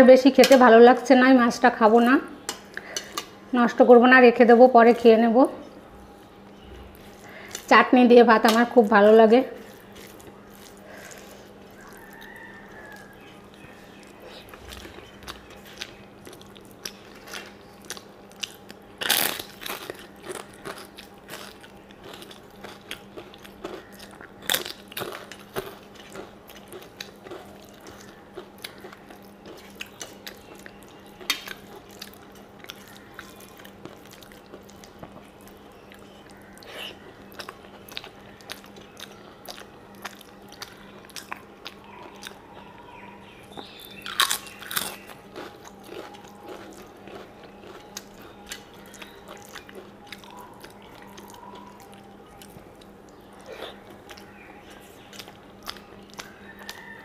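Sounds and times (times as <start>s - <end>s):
chewing food: 8.5s - 57.0s.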